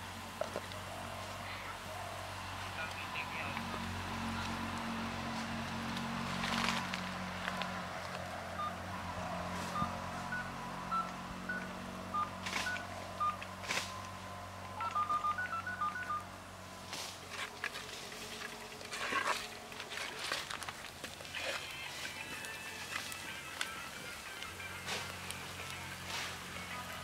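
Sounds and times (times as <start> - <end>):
short high beeps: 9.7 - 13.4, 14.8 - 16.2.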